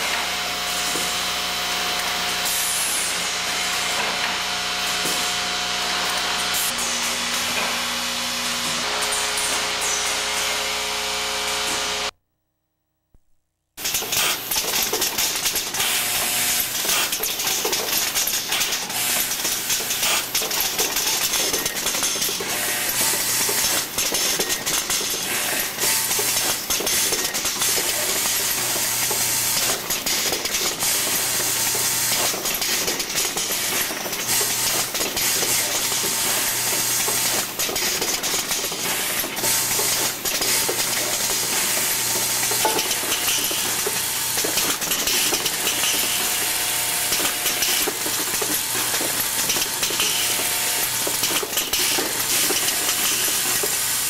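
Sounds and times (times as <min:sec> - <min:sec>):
machinery clicks and clacks: 0:13.8 - 0:54.0
vibratory bowl feeder buzzing: 0:18.9 - 0:54.0.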